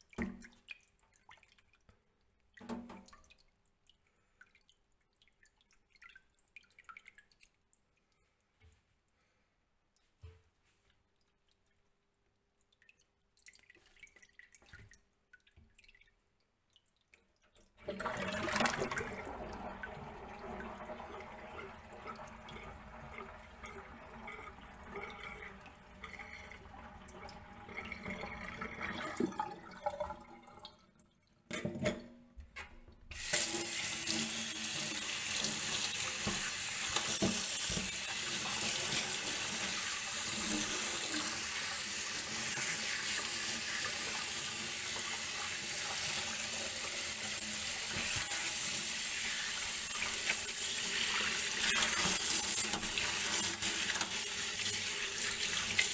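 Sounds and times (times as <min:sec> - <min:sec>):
tap water running into sink: 0:02.6 - 0:03.2, 0:17.8 - 0:30.6, 0:33.1 - 0:55.9.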